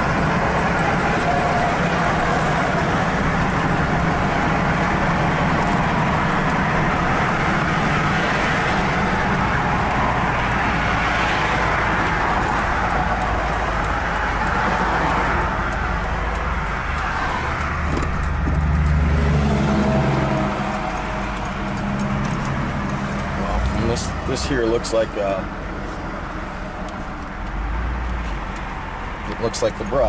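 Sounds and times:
vehicle engine running: 0:00.0 - 0:29.0
tyres on the road: 0:00.0 - 0:30.0.

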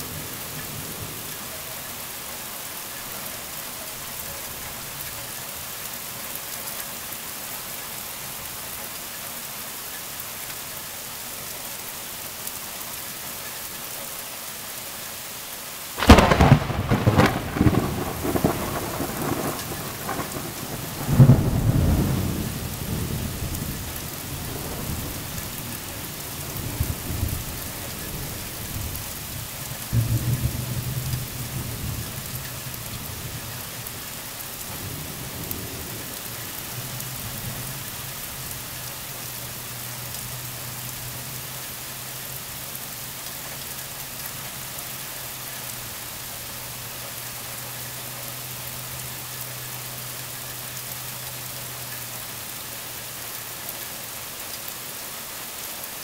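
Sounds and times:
heavy rain: 0:00.0 - 0:56.0
thunder cracking and rumbling: 0:16.0 - 0:34.0.

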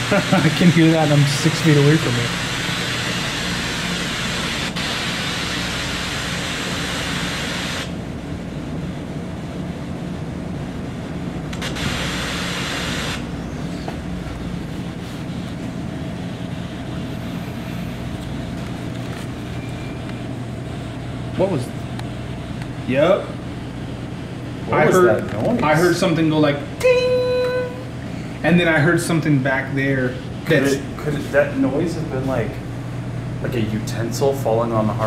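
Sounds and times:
white-noise hiss: 0:00.0 - 0:08.6, 0:10.6 - 0:13.3.

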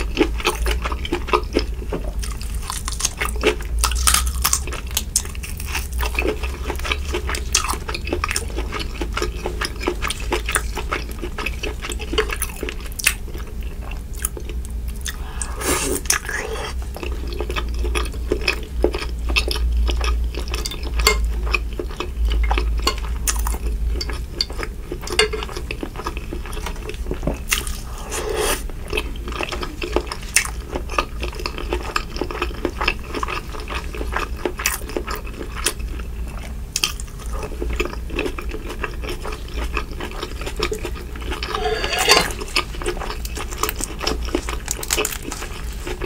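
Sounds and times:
steady low hum: 0:00.0 - 0:46.0
metal spoon scraping glass dish: 0:41.4 - 0:42.5.

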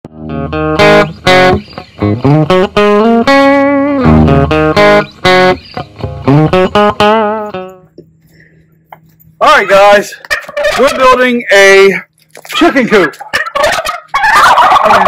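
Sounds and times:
guitar-led tune with percussion: 0:00.1 - 0:09.4.

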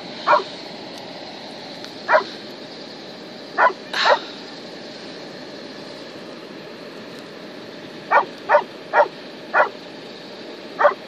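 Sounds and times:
dog barking: 0:00.3 - 0:00.5, 0:02.1 - 0:02.3, 0:03.6 - 0:04.2, 0:08.1 - 0:09.8, 0:10.8 - 0:11.0.

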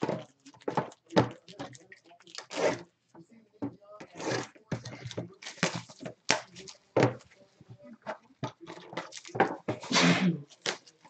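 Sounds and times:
utility knife slicing cardboard: 0:02.4 - 0:02.8
boxes knocking: 0:03.6 - 0:09.9.

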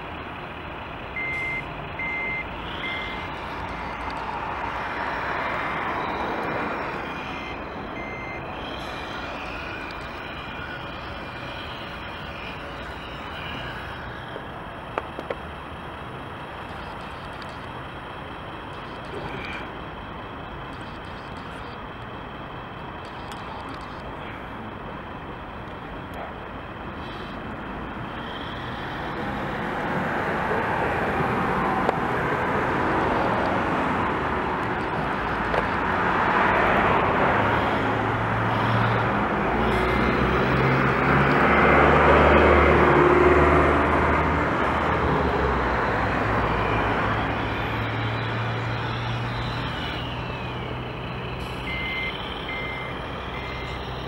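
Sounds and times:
road traffic passing: 0:00.0 - 0:54.0
van passing: 0:00.0 - 0:54.0
short electronic beeps: 0:01.2 - 0:04.3, 0:06.0 - 0:14.2, 0:38.5 - 0:41.0, 0:46.4 - 0:54.0.

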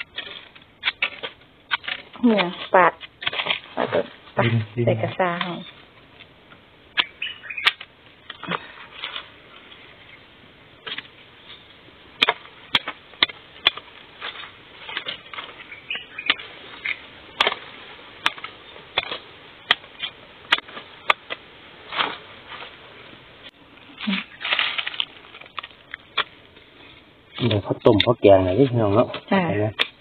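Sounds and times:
rustling of husk and leaves: 0:00.0 - 0:30.0
machete chopping bamboo: 0:12.2 - 0:15.5, 0:17.3 - 0:22.2, 0:29.1 - 0:30.0.

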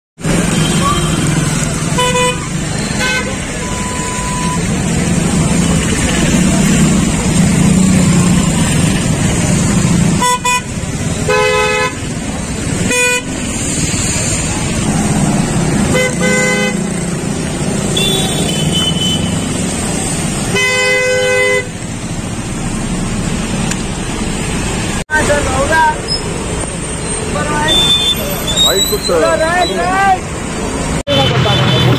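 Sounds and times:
engine rumble: 0:00.2 - 0:27.6
vehicle horns honking: 0:00.3 - 0:04.6, 0:10.1 - 0:12.2, 0:12.8 - 0:13.5, 0:15.8 - 0:17.1, 0:17.8 - 0:19.6, 0:20.5 - 0:21.8, 0:27.4 - 0:30.0, 0:31.1 - 0:31.9.

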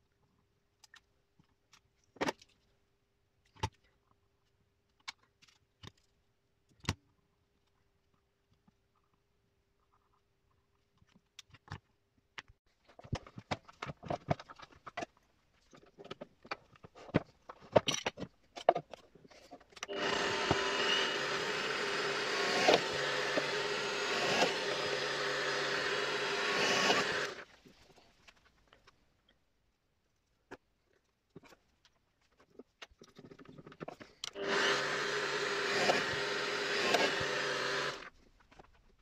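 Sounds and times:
electric drill boring wood: 0:19.8 - 0:27.5, 0:34.3 - 0:38.1.

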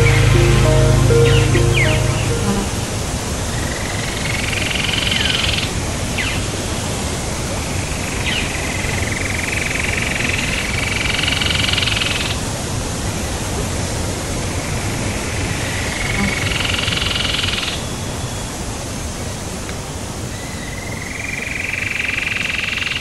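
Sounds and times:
waterfall rushing: 0:00.0 - 0:03.5.

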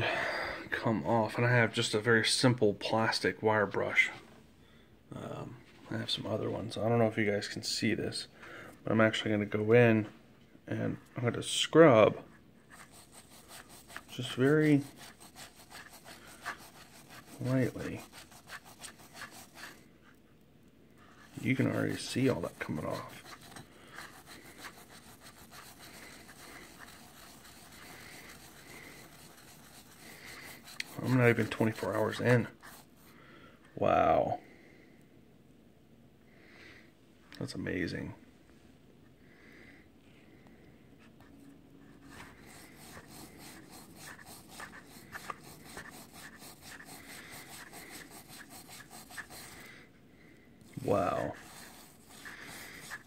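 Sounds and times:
brush scrubbing metal: 0:12.6 - 0:19.9, 0:21.1 - 0:33.0, 0:42.0 - 0:49.8, 0:50.6 - 0:53.0.

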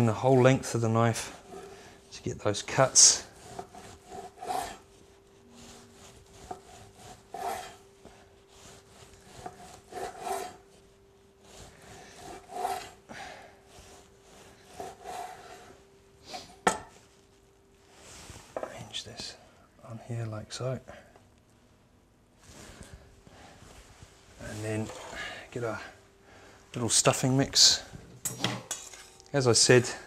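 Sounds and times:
faint steady hum: 0:00.0 - 0:30.0
knife sawing through meat: 0:03.0 - 0:07.9, 0:08.5 - 0:10.8, 0:11.4 - 0:13.0, 0:13.7 - 0:15.7.

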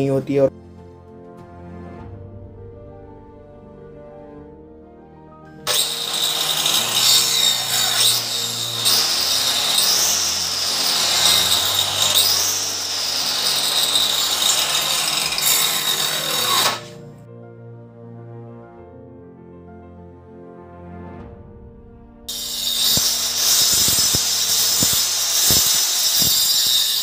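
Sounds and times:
electric cutter cutting wood: 0:05.6 - 0:17.0, 0:22.3 - 0:27.0.

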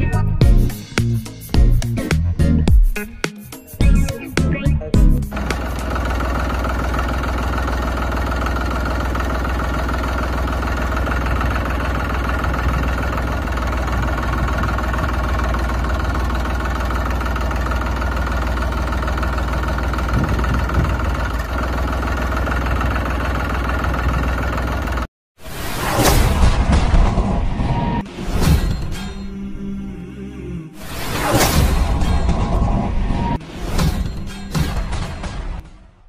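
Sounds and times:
tractor engine idling: 0:05.1 - 0:25.1.

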